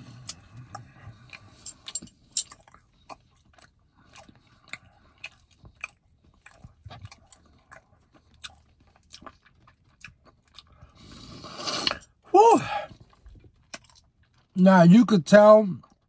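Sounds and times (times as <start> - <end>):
person chewing food: 0.0 - 14.6, 15.8 - 16.0.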